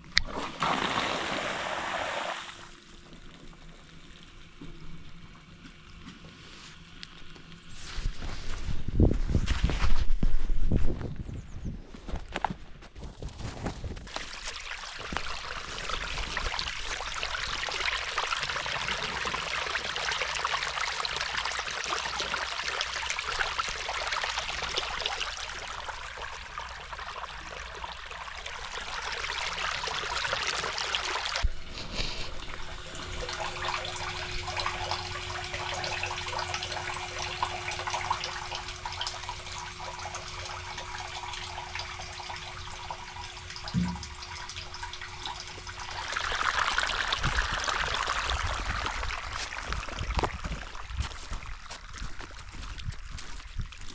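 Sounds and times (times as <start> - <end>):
wastewater gushing from a hose: 0.0 - 9.0, 13.4 - 53.9
quieter water flow: 0.0 - 10.2, 13.3 - 53.9
steady hum: 31.4 - 49.5.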